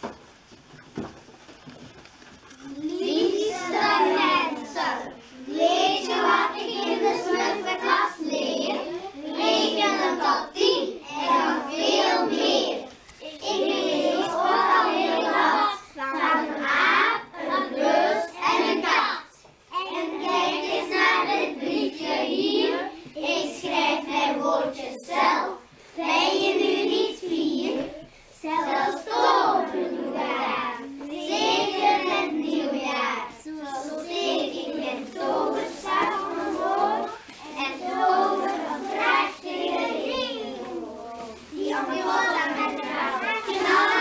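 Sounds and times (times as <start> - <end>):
children singing in unison: 2.7 - 44.0.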